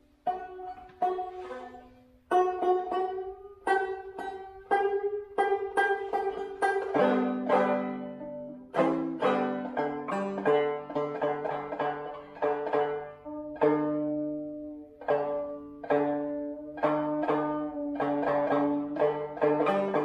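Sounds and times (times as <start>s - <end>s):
banjo plucked notes: 0.0s - 20.0s.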